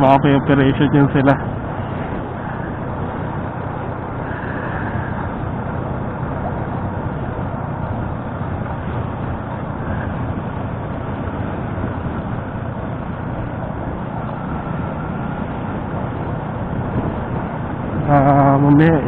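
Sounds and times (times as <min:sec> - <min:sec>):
motorcycle engine: 0:00.0 - 0:19.0
road noise: 0:00.0 - 0:19.0
wind noise: 0:00.0 - 0:19.0.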